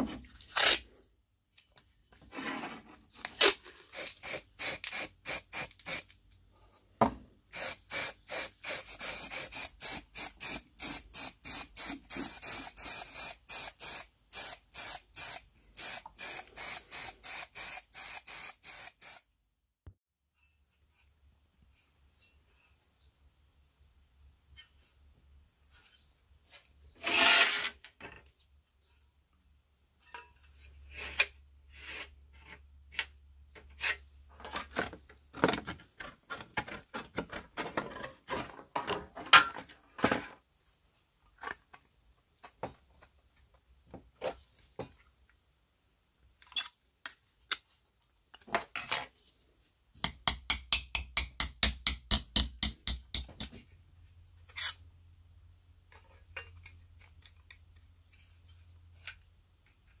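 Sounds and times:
paper and tape handling: 0.3 - 0.9, 3.1 - 6.2.

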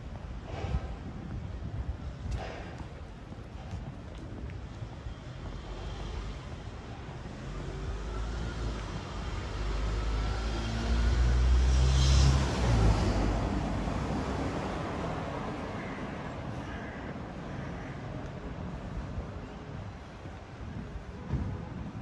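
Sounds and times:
vehicle engine driving past: 7.8 - 15.3.

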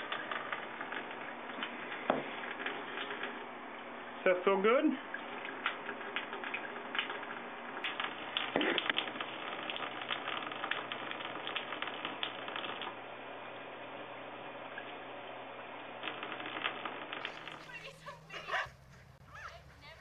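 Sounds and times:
tap water running: 0.0 - 10.4.

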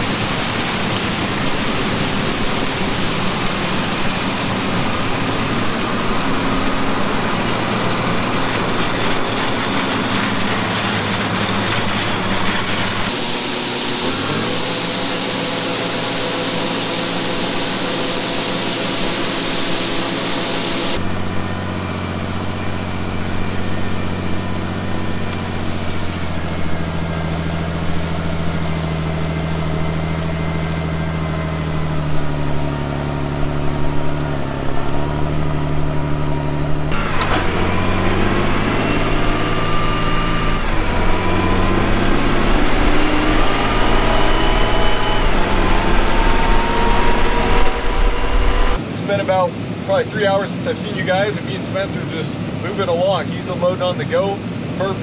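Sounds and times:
grain pouring and hissing: 0.0 - 21.1
tractor diesel engine droning: 0.0 - 50.4
combine engine: 0.0 - 55.0.

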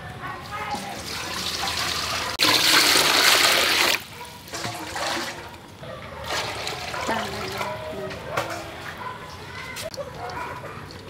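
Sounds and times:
water pouring into metal pot: 0.8 - 5.4.

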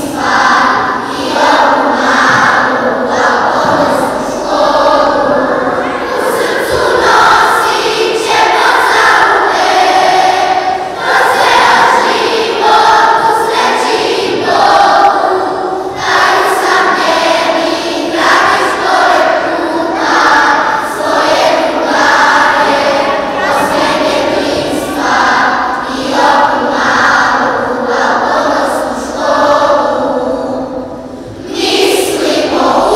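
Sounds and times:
children singing: 0.0 - 32.9.

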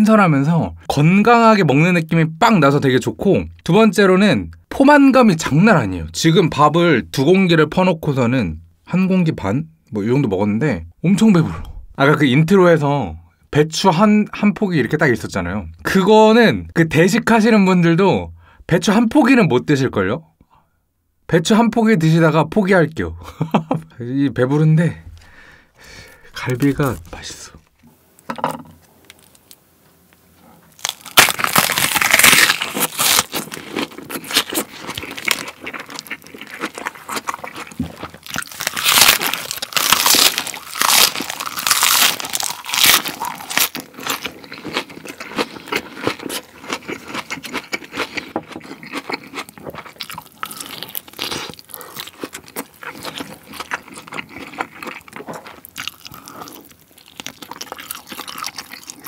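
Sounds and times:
cabbage leaf crunching: 30.7 - 47.0
soft chewing: 33.3 - 59.0.

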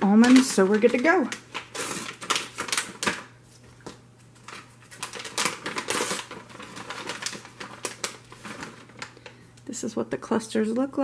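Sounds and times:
plastic pouch crinkling: 0.0 - 9.4.

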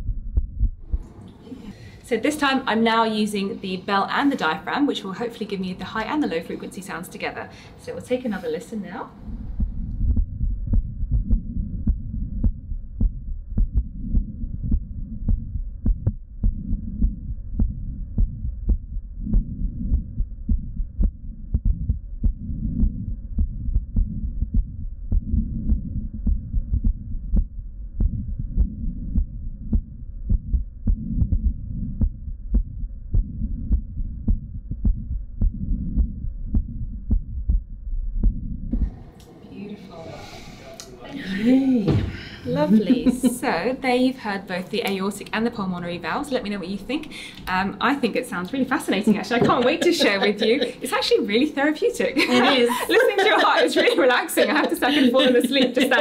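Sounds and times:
heart murmur: 0.0 - 1.2, 9.2 - 39.0
heartbeat through stethoscope: 0.0 - 1.2, 9.2 - 39.0.

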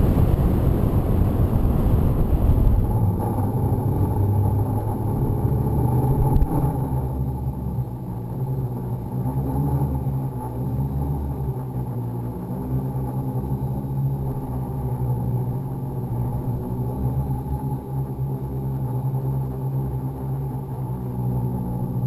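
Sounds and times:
rushing air: 0.0 - 4.6.

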